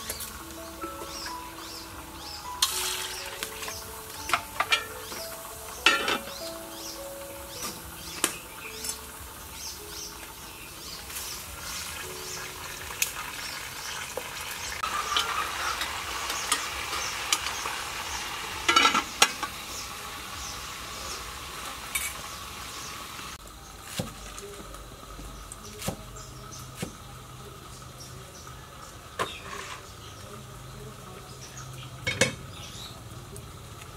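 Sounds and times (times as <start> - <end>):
food sizzling in pot: 0.0 - 33.9
metal pot lid clinking: 4.3 - 4.9, 5.8 - 6.3, 18.7 - 19.5.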